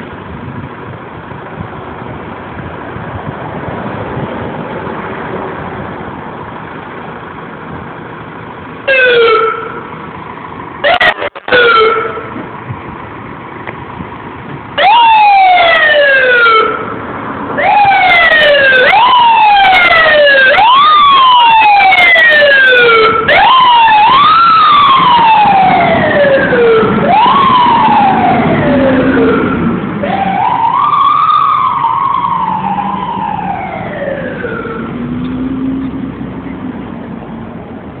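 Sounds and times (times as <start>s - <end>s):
fire engine siren wailing: 7.2s - 12.5s, 14.7s - 36.5s.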